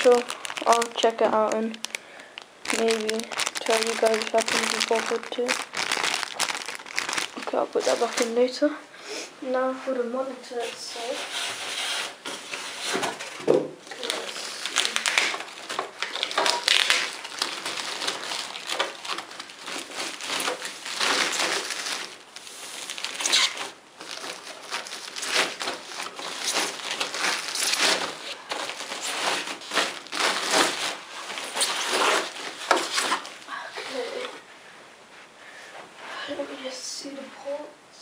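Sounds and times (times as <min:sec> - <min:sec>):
polystyrene pieces knocking: 0:00.0 - 0:08.4, 0:12.2 - 0:33.4
plastic bag crinkling: 0:00.0 - 0:08.7, 0:12.8 - 0:34.3.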